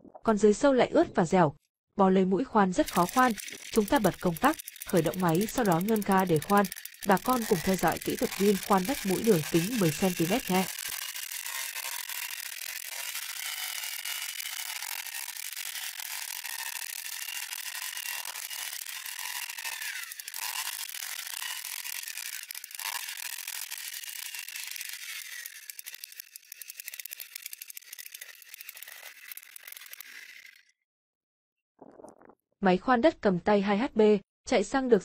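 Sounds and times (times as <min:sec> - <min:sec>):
earth auger engine boring soil: 0:02.7 - 0:30.6.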